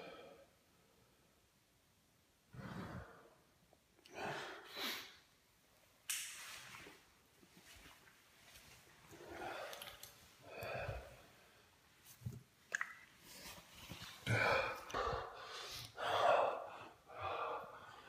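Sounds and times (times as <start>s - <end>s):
man breathing heavily: 9.2s - 11.8s, 14.1s - 18.0s
man gasping: 14.2s - 18.0s.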